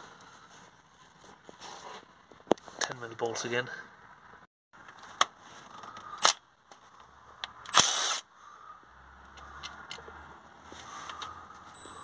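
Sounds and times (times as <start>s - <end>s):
power tool spinning bolts: 7.7s - 8.3s.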